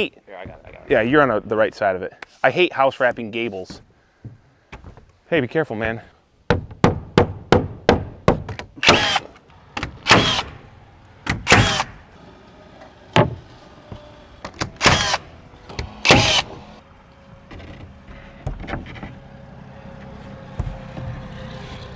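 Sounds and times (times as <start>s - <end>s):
nail gun firing: 8.8s - 10.6s, 11.3s - 12.0s, 14.6s - 15.2s, 15.8s - 16.5s.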